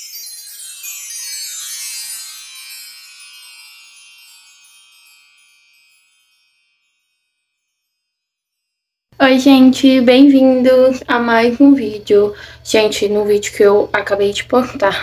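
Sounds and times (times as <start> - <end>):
sparkling chime: 0.0 - 9.2.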